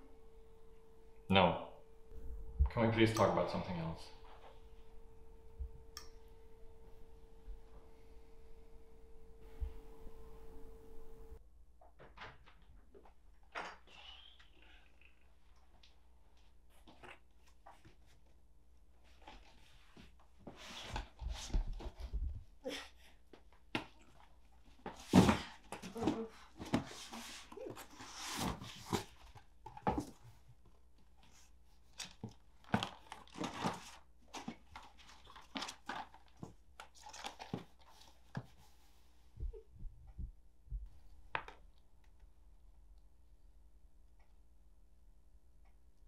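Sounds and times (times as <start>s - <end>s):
box contents rummaged: 32.0s - 38.3s.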